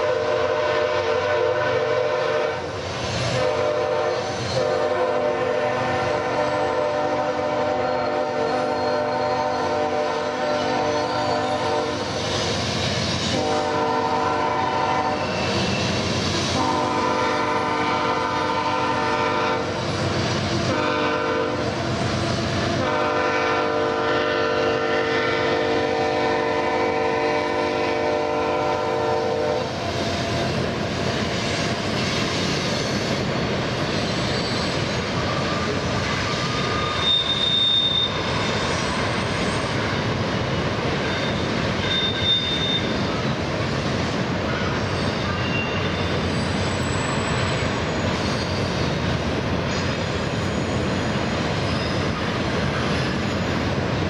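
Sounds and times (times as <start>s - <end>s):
locomotive air horn: 0.0s - 2.7s, 3.3s - 12.1s, 13.3s - 15.7s, 16.5s - 19.8s, 20.6s - 21.8s, 22.8s - 29.8s, 36.7s - 38.3s, 41.8s - 43.0s
thin high squeal: 7.8s - 9.7s, 10.9s - 12.4s, 33.9s - 39.8s, 41.1s - 43.1s, 44.8s - 48.9s, 49.7s - 52.2s.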